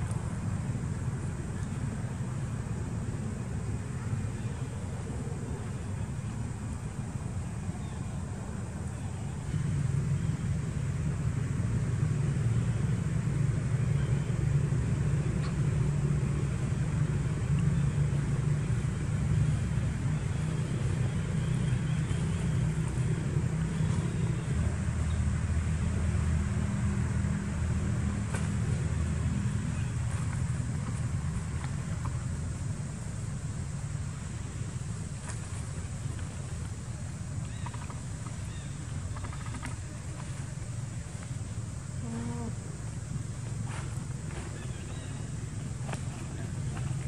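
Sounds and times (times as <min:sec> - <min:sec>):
low engine rumble: 0:00.0 - 0:47.0
deeper hum: 0:41.7 - 0:45.6.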